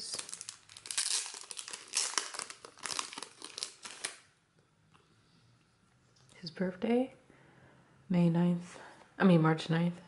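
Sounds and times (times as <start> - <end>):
plastic bag crinkling: 0.0 - 4.3.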